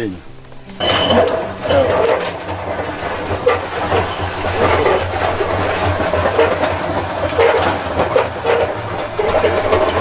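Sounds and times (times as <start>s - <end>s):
hand-cranked stirrer rattling: 0.8s - 10.0s.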